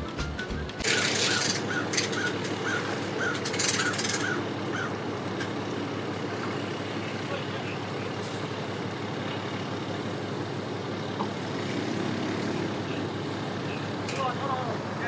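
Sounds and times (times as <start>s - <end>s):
background music: 0.0s - 0.9s
bird calling: 0.0s - 5.6s
personal watercraft engine running: 0.0s - 15.0s.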